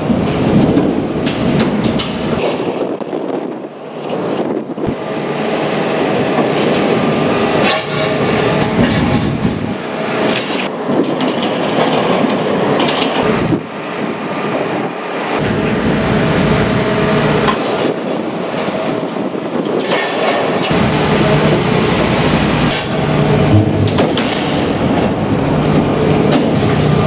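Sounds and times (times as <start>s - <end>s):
machine hydraulics running: 3.9s - 27.0s
metal grinding and scraping: 6.1s - 17.7s, 19.8s - 26.8s
hydraulic shear tearing steel: 6.2s - 13.7s
deep rumble: 20.7s - 27.0s.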